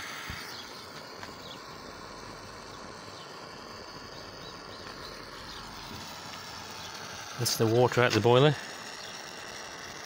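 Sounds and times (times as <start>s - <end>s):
faint bird chirps: 0.0s - 6.0s
faint steady hiss: 0.0s - 10.0s.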